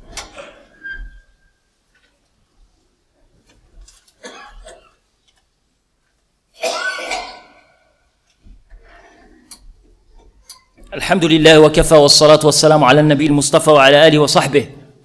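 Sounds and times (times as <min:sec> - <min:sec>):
person coughing: 0:04.2 - 0:05.0, 0:06.6 - 0:07.8.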